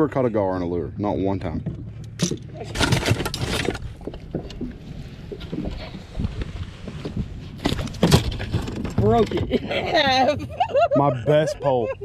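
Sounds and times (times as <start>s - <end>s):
gear clattering on boat deck: 1.3s - 10.6s.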